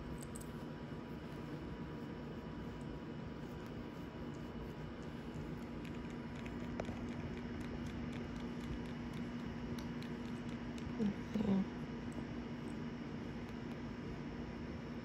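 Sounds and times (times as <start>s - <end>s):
kitten purring: 3.3s - 12.2s.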